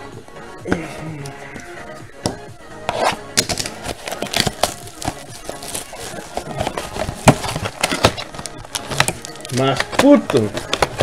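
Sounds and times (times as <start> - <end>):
cardboard and foil pack rustling: 2.9 - 11.0.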